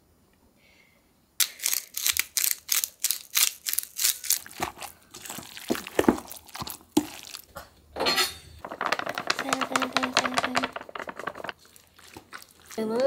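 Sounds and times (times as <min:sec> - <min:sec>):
pepper mill grinding: 0:01.4 - 0:07.5, 0:08.6 - 0:13.0
wooden spoon stirring in metal bowl: 0:04.5 - 0:07.6, 0:08.6 - 0:13.0.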